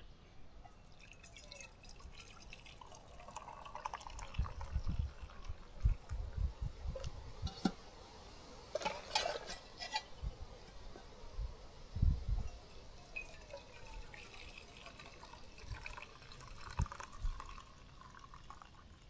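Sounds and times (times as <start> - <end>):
liquid pouring and dripping: 0.6 - 7.2, 12.4 - 19.0.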